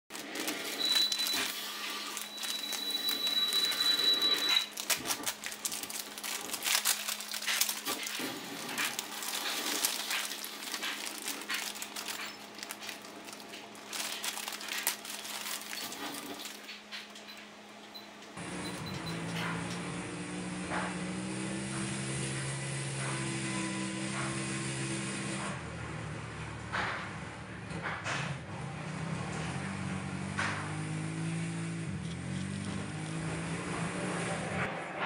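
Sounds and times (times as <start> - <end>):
plastic bag crinkling: 0.1 - 17.4
thin high tone: 0.6 - 4.8.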